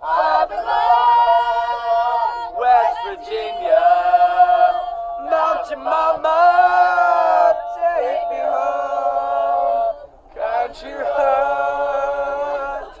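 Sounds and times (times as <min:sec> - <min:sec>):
group of people singing: 0:00.0 - 0:13.0.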